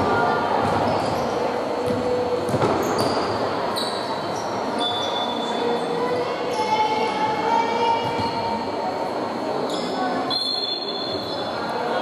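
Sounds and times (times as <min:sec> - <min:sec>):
murmur of voices: 0:00.0 - 0:12.0
sneakers squeaking: 0:00.6 - 0:05.6, 0:08.0 - 0:08.5
basketball bouncing on wooden court: 0:01.8 - 0:03.2.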